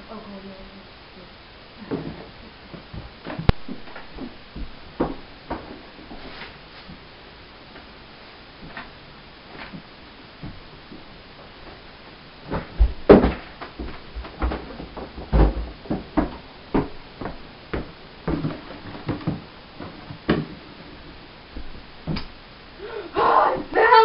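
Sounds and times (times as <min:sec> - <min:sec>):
objects knocking and clattering: 0:12.5 - 0:20.6.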